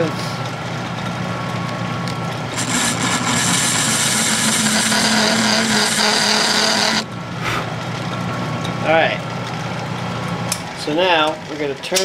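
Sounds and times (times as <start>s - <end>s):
lathe humming: 2.5s - 7.1s
tool cutting metal scraping whine: 2.5s - 7.1s.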